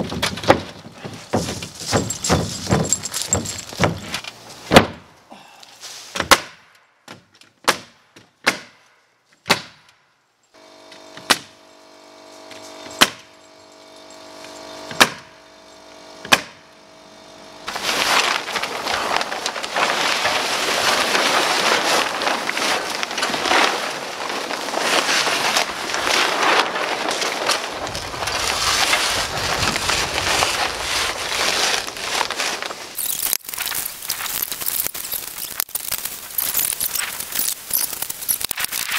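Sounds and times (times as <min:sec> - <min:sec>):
nail gun shots: 0:07.6 - 0:08.9, 0:09.5 - 0:10.0, 0:16.3 - 0:16.6
steady hum: 0:10.6 - 0:24.8.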